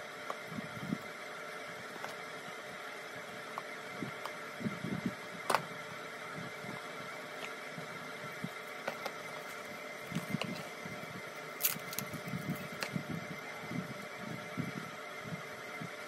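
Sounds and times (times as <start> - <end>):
fan-like hum: 0.0 - 16.0
packaging rustling: 8.5 - 13.0.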